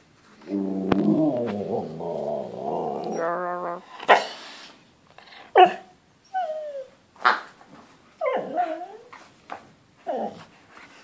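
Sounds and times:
dog whining: 0.4s - 4.4s, 5.3s - 7.0s, 8.2s - 9.2s, 10.0s - 10.5s.

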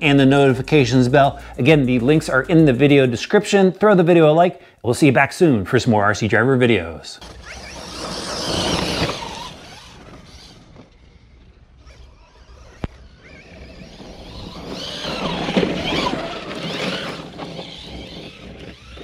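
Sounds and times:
electric motor whining: 7.2s - 19.0s
tyres crunching on gravel: 7.2s - 19.0s.

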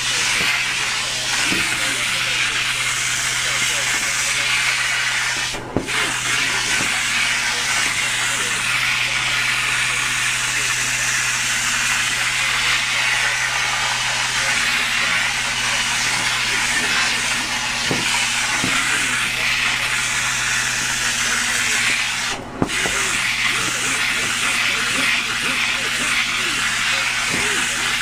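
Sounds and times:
extraction cleaner spraying and sucking: 0.0s - 28.0s
low motor hum: 0.0s - 28.0s.

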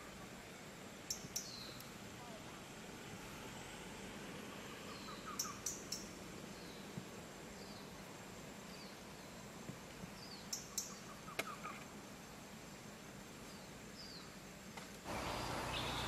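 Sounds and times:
steady forest hiss: 0.0s - 16.0s
bird chirping: 1.0s - 1.9s, 4.8s - 8.0s, 10.2s - 11.8s, 15.1s - 16.0s.

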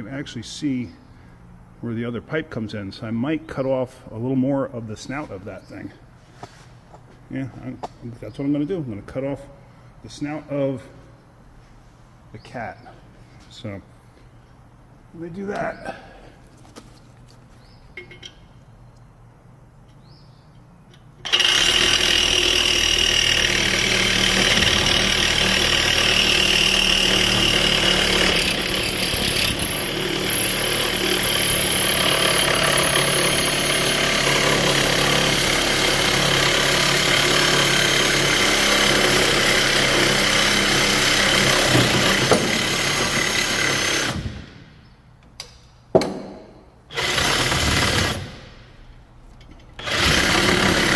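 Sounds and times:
reciprocating saw cutting metal: 21.2s - 44.2s.

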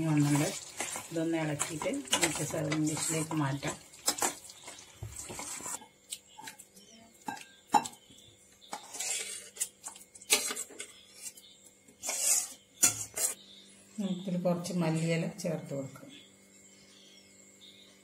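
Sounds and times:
metal spoon scraping steel pot: 0.2s - 4.4s, 8.6s - 11.4s, 12.0s - 13.4s.

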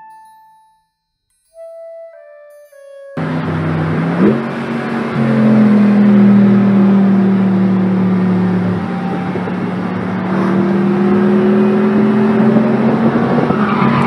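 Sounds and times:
car engine accelerating: 3.2s - 14.0s.

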